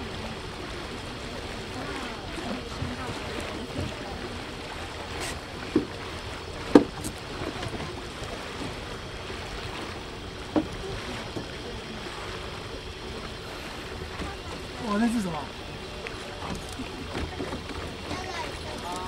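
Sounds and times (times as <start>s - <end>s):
rush of water and wind: 0.0s - 19.0s
short knocks: 6.7s - 7.8s.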